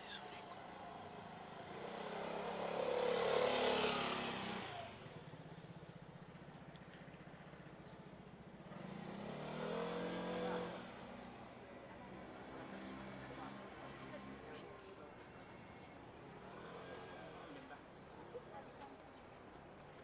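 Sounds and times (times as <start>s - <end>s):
vehicles passing by: 0.0s - 20.0s
engine running with low pulsing: 3.3s - 9.1s.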